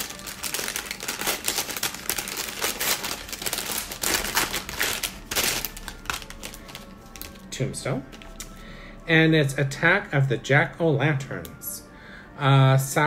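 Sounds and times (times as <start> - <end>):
packaging crinkling: 0.0 - 7.5.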